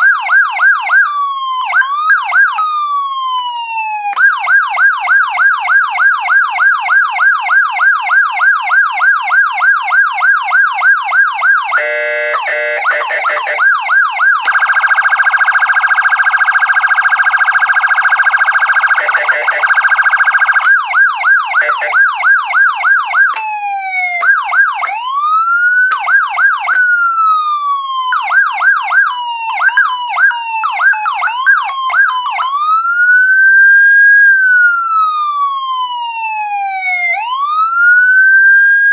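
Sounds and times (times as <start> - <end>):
electronic siren yelp and warble: 0.0 - 38.9.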